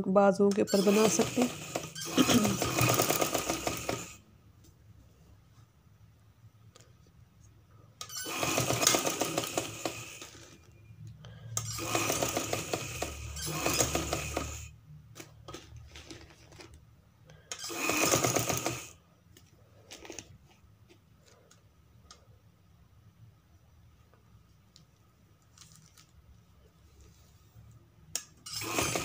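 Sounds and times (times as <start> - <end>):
sewing machine stitching: 0.6 - 4.2, 8.0 - 10.6, 11.6 - 16.3, 17.5 - 19.0, 28.4 - 29.0.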